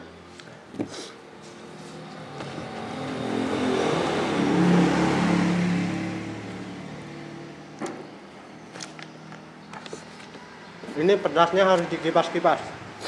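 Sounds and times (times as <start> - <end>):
vehicle passing by: 1.4 - 8.7.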